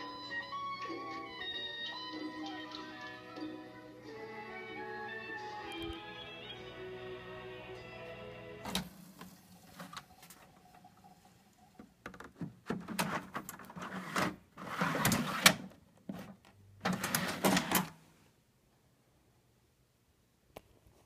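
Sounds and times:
film music: 0:00.0 - 0:09.2
plastic disc caddy scraping and clicking: 0:12.7 - 0:17.9.

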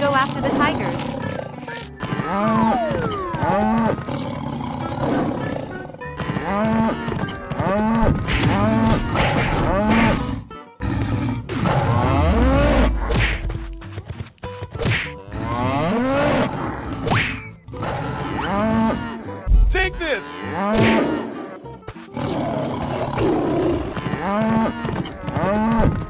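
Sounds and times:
cattle mooing: 0:00.0 - 0:12.9, 0:17.8 - 0:19.5, 0:20.2 - 0:21.6.

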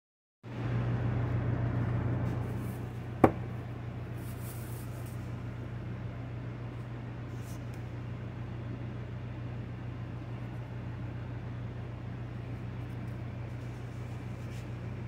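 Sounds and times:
low room hum: 0:00.5 - 0:15.0
handling rustle: 0:04.1 - 0:05.4.

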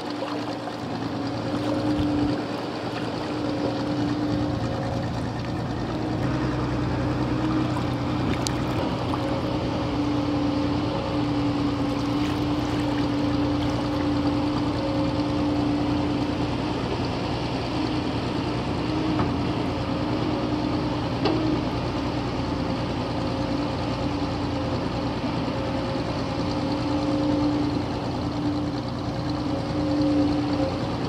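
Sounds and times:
motor engine droning: 0:00.0 - 0:31.0
deep hum: 0:00.5 - 0:15.4.

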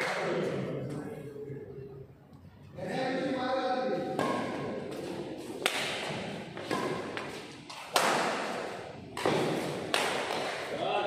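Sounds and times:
badminton rackets hitting shuttlecock: 0:04.1 - 0:10.8.

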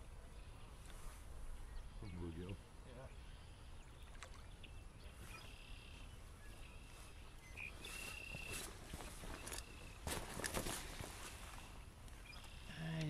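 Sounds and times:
birds whistling: 0:01.7 - 0:10.2.

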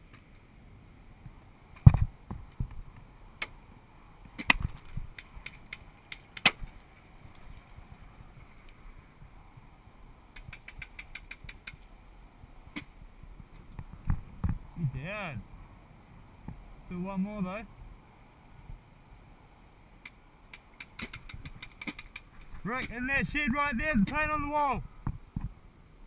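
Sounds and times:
paintball markers firing: 0:20.6 - 0:22.9.

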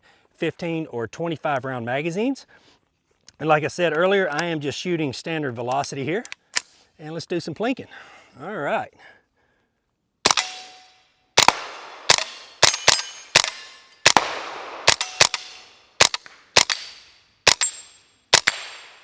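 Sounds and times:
pistol shots with echo: 0:11.4 - 0:19.0.

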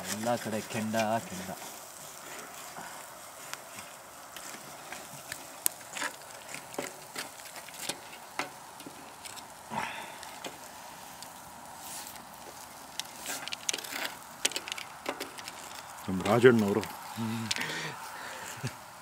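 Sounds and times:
charcoal grill crackling: 0:00.0 - 0:19.0
steady low hiss: 0:00.0 - 0:19.0.

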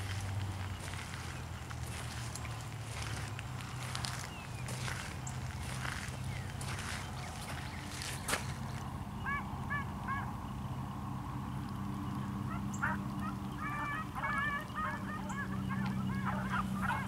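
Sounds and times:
beagles baying: 0:12.5 - 0:17.0.

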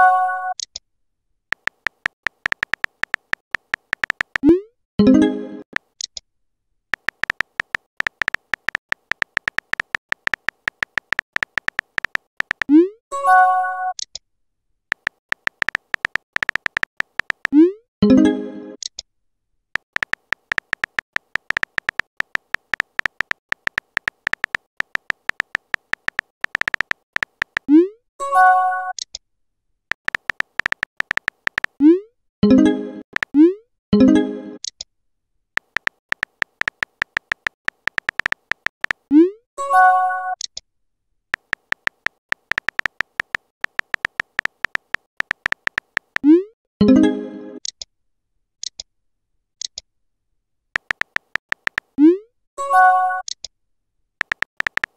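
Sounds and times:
phone keyboard key clicks: 0:01.5 - 0:04.4, 0:07.0 - 0:12.7, 0:14.9 - 0:17.6, 0:19.8 - 0:27.7, 0:29.9 - 0:31.8, 0:33.1 - 0:33.4, 0:35.6 - 0:39.0, 0:41.4 - 0:46.2, 0:50.8 - 0:52.0, 0:54.2 - 0:54.9.

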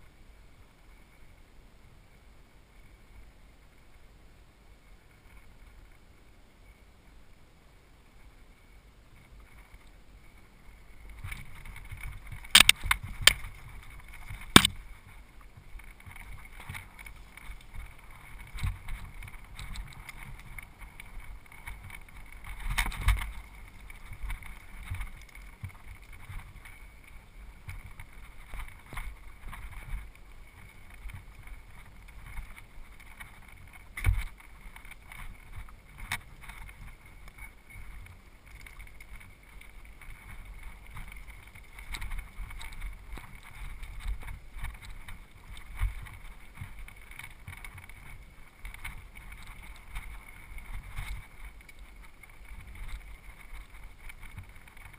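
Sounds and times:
bike tyres rumbling on trail: 0:09.0 - 0:54.9
bike clacking over bumps: 0:14.5 - 0:14.8.

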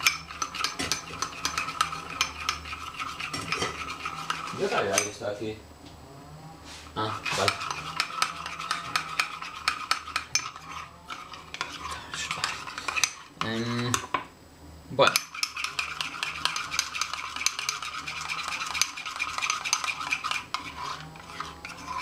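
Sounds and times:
spoon clinking in glass mug: 0:04.8 - 0:05.2.

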